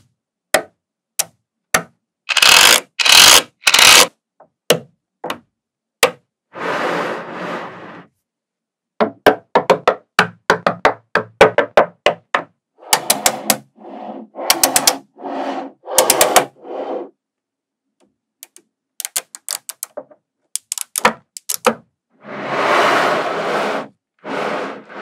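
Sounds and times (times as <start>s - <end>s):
magnetic balls clicking together: 2.3s - 4.1s, 18.4s - 21.8s.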